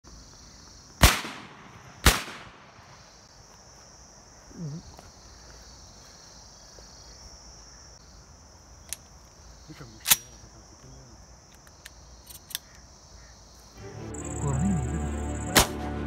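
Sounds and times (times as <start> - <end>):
shotgun shots with echo: 1.0 - 2.8
high insect drone: 1.6 - 16.0.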